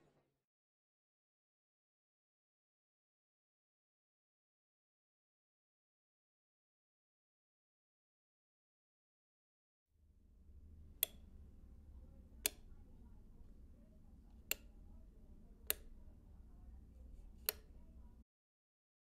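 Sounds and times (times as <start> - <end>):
low room hum: 10.0 - 18.2
sharp clicks: 11.0 - 11.3.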